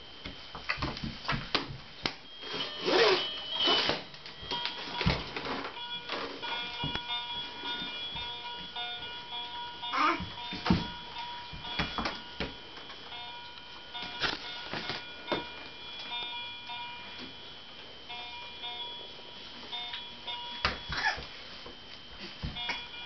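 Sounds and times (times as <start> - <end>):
toy piano electronic tune: 2.4 - 17.3.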